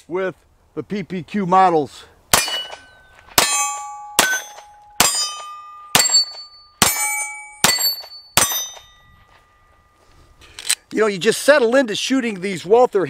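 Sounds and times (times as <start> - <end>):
pistol shots: 2.3 - 8.8
steel targets ringing: 2.3 - 10.0.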